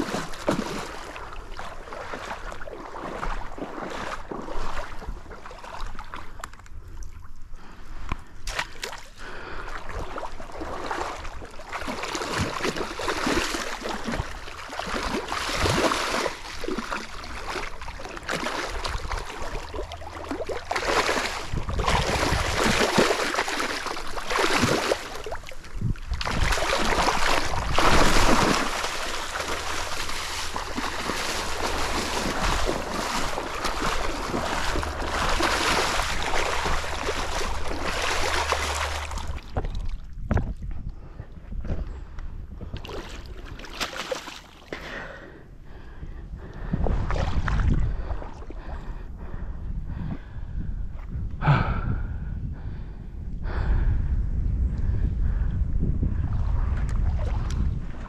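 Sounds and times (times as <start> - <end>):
fish thrashing and splashing: 0.0 - 4.8, 9.8 - 40.5, 42.7 - 44.8.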